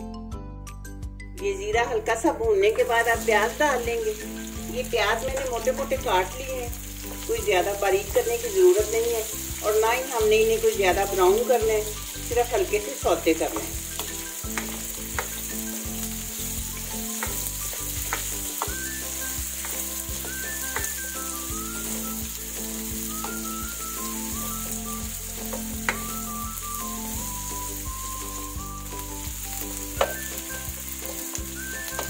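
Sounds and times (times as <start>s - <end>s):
onions sizzling in oil: 2.6s - 32.0s
spatula knocking on pan: 13.5s - 15.5s, 17.1s - 18.9s, 19.6s - 21.0s, 25.4s - 26.2s, 30.0s - 30.3s.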